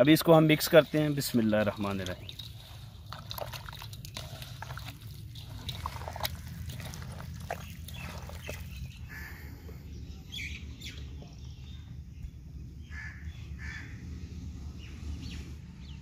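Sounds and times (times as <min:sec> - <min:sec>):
hands squelching in wet batter: 0:00.1 - 0:09.3
bird calling: 0:05.8 - 0:11.0.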